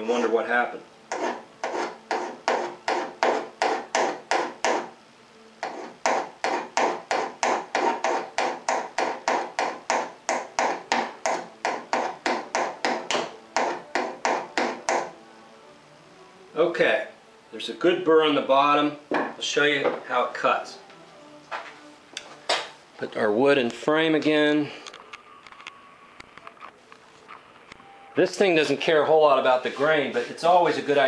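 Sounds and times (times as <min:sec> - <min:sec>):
metal scraping on metal: 0:01.1 - 0:04.9, 0:05.6 - 0:09.2.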